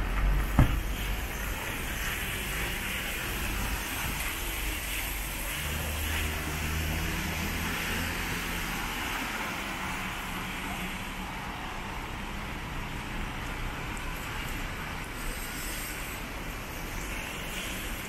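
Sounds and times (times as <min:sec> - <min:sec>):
tyres hissing on wet road: 0:00.0 - 0:18.0
cars passing: 0:05.2 - 0:14.6.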